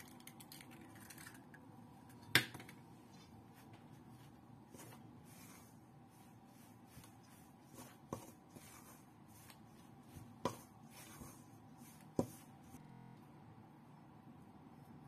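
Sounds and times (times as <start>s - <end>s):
utensil scraping dough: 4.7s - 12.8s.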